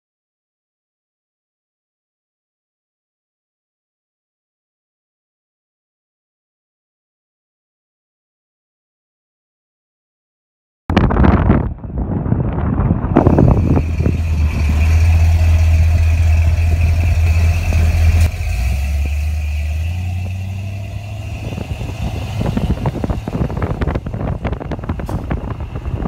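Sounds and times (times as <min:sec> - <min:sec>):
deep engine exhaust rumble: 0:10.9 - 0:26.0
wind buffeting microphone: 0:10.9 - 0:26.0.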